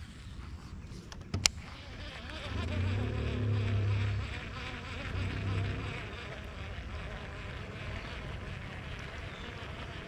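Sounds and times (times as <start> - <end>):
flying insect buzzing: 1.4 - 10.0.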